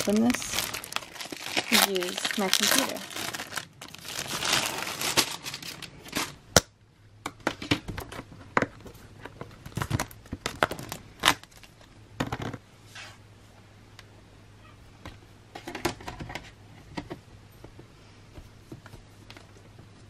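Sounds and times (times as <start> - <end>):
plastic packaging crinkling: 0.0 - 6.4, 9.6 - 11.9.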